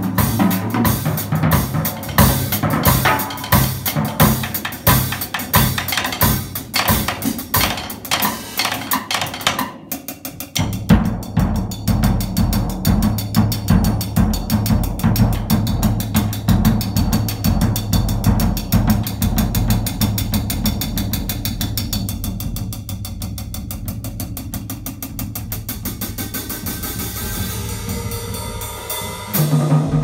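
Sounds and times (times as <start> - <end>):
drum kits playing a groove: 0.0 - 30.0.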